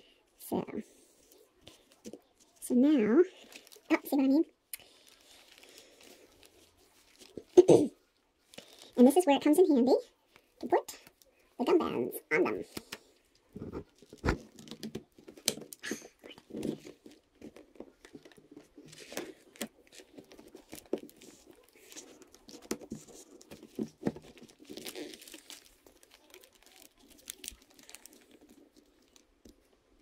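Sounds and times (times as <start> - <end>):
rustling on paper: 4.8 - 7.6, 12.6 - 30.0.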